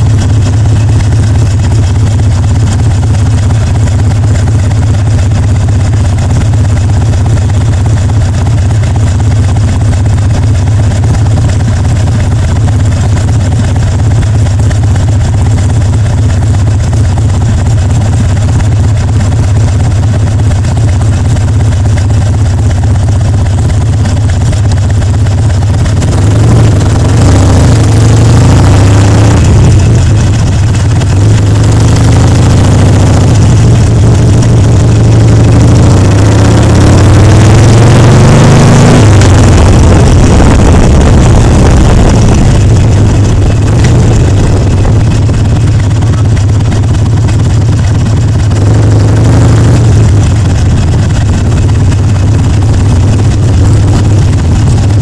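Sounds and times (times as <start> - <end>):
motorcycle accelerating: 0.0 - 55.0
motorcycle engine idling: 0.0 - 55.0
wind rushing over microphone: 39.3 - 45.7.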